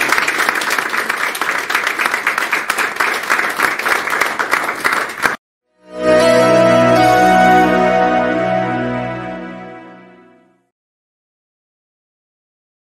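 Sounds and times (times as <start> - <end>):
audience applauding: 0.0 - 5.4
music with sustained notes: 5.7 - 10.7.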